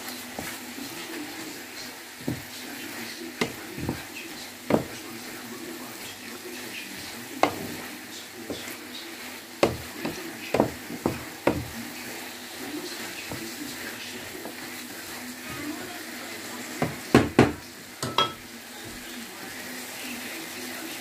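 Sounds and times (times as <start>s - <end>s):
food sizzling in a frying pan: 0.0s - 21.0s
spatula knocking against pan: 2.2s - 2.5s, 3.4s - 4.1s, 4.7s - 5.0s, 7.4s - 7.9s, 9.6s - 11.8s, 16.8s - 18.4s.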